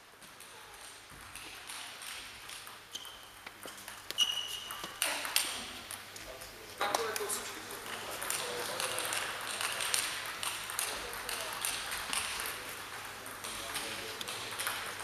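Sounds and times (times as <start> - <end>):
table tennis ball ticking: 7.8 - 15.0.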